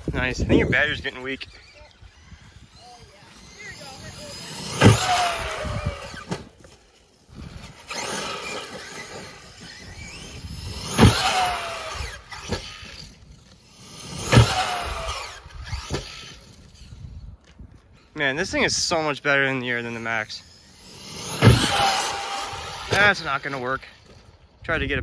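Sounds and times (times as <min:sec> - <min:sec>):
electric motor whine: 0:00.0 - 0:17.6, 0:19.8 - 0:24.4
sharp hit leaving ramp: 0:04.0 - 0:06.6, 0:07.8 - 0:13.0, 0:20.5 - 0:24.3
toy truck landing thud: 0:04.7 - 0:06.6, 0:10.7 - 0:13.0, 0:14.2 - 0:16.3, 0:21.1 - 0:23.2.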